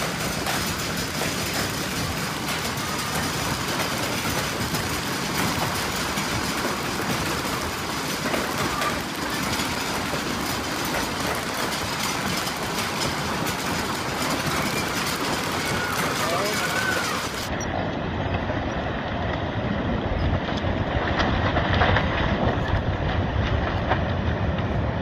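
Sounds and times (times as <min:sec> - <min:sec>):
hailstones hitting surfaces: 0:00.0 - 0:17.5
strong wind roaring: 0:00.0 - 0:25.0.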